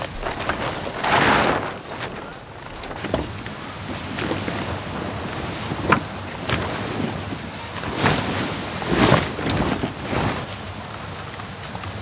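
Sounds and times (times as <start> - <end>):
short knocks and rustles: 0.0 - 4.8
outdoor rushing noise: 0.0 - 5.6.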